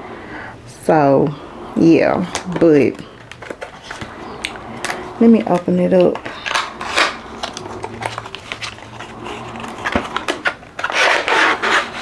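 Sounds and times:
plastic wrapping crinkle: 3.1 - 12.0.

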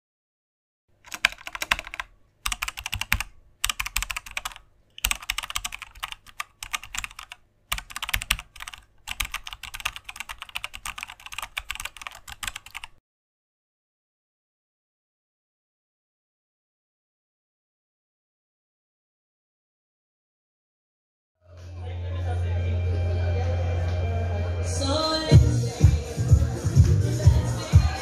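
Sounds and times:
typing on computer keyboard: 1.0 - 13.0.

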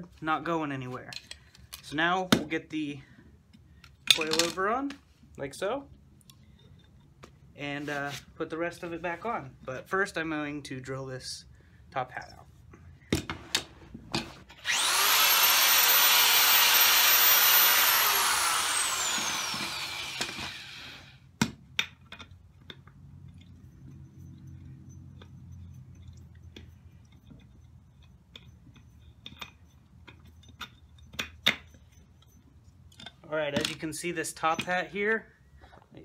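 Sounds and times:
electric drill whining: 14.6 - 21.2.

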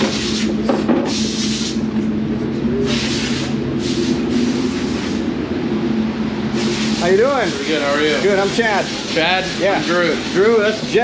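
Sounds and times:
machinery humming: 0.0 - 11.0
hissing bursts: 2.8 - 5.2, 6.5 - 7.4.

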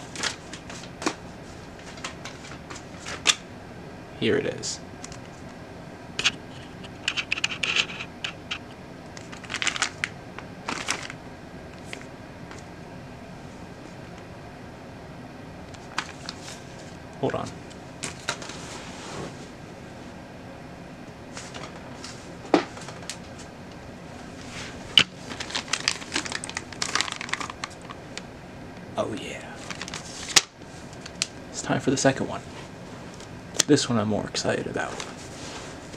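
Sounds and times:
plastic bag crinkling: 9.2 - 11.2, 24.9 - 28.1, 29.6 - 31.3.

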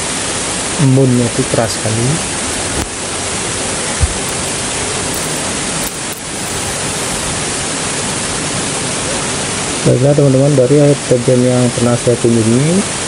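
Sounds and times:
waterfall rushing: 1.7 - 9.8
low thump: 4.0 - 4.3.

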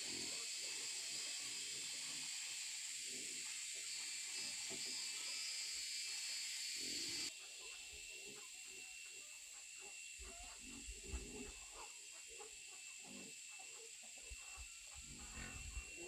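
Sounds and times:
forest insects droning: 0.0 - 16.0
young boars grunting and snuffling: 10.2 - 16.0.

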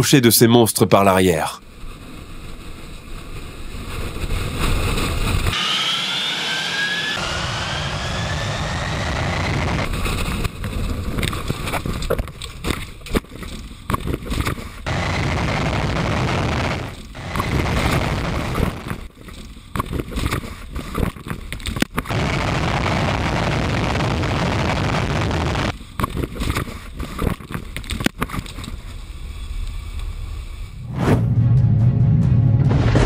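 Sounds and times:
wind rush: 3.2 - 12.0, 14.8 - 19.1
jet engine exhaust roaring: 5.1 - 10.6, 14.8 - 19.1, 22.1 - 25.8.

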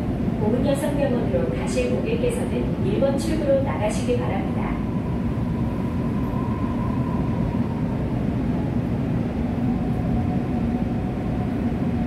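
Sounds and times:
lower whine: 4.0 - 12.0.

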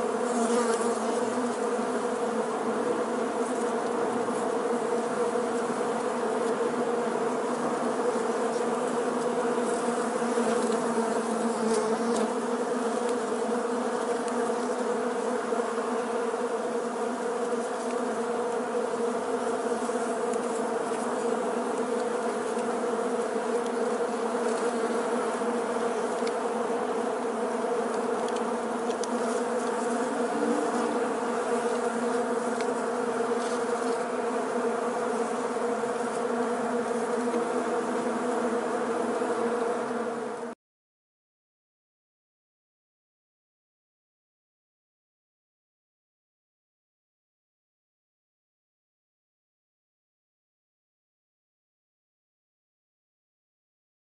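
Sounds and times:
honeybees buzzing: 0.0 - 40.6.

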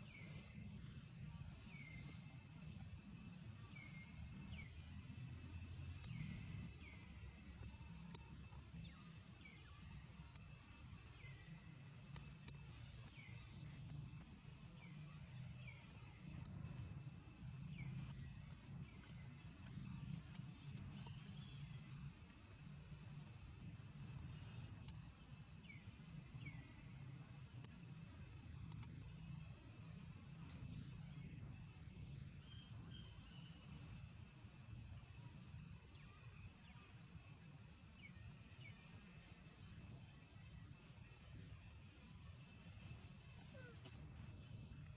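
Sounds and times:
faint high chirps: 0.0 - 44.9
steady high-pitched hum: 0.0 - 44.9
faint clicks: 6.0 - 6.2, 7.6 - 9.5, 12.0 - 14.3, 24.7 - 25.1, 27.6 - 27.8, 28.6 - 29.1.

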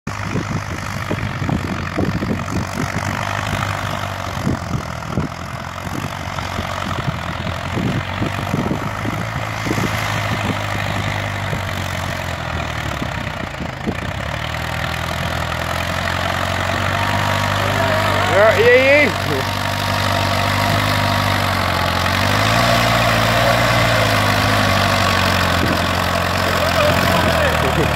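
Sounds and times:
wind buffeting microphone: 0.1 - 14.3, 22.2 - 26.1
tractor engine running: 0.1 - 27.9.

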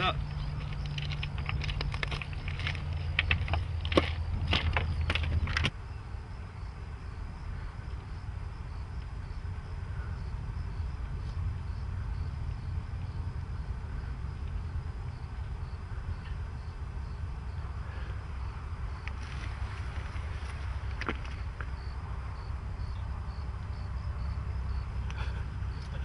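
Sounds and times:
low wind rumble: 0.0 - 26.0
pulsing insect trill: 0.0 - 26.0.

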